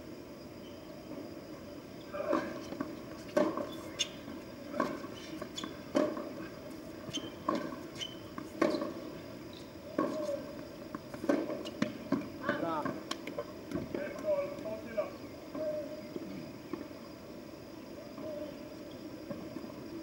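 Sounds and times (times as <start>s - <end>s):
shoe squeaks: 3.2s - 4.3s, 5.0s - 6.0s, 7.0s - 10.4s.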